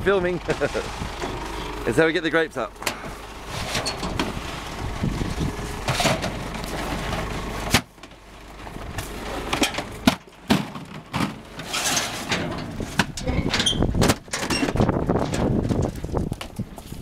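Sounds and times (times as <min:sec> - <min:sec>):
low rumble: 0:00.0 - 0:11.6
plastic buckets clattering: 0:05.8 - 0:16.7.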